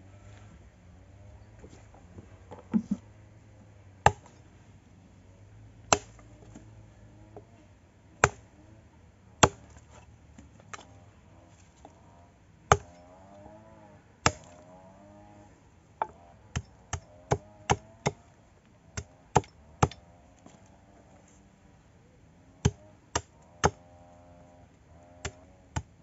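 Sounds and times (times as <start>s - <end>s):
hatchet chopping wood: 4.0s - 4.4s, 5.9s - 6.6s, 8.2s - 8.5s, 9.4s - 10.0s, 12.7s - 13.0s, 14.2s - 14.6s, 16.0s - 18.2s, 19.0s - 20.6s, 22.6s - 23.9s, 25.1s - 26.0s.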